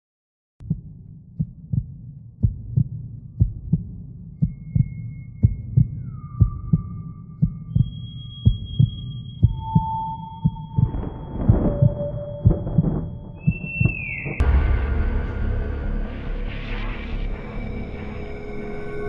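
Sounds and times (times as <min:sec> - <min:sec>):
heartbeat double thump: 0:00.6 - 0:16.2
eerie high tones: 0:07.8 - 0:19.0
low hum: 0:08.6 - 0:19.0.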